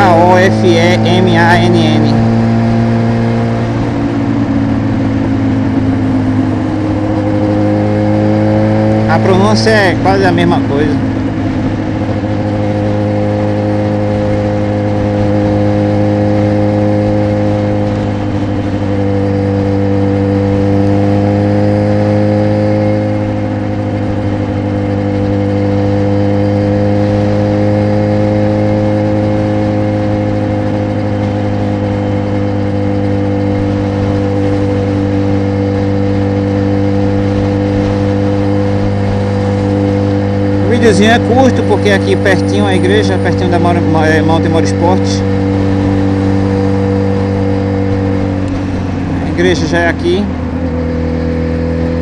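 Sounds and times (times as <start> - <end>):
motorcycle engine cruising: 0.0 - 52.0
wind and road noise: 0.0 - 52.0.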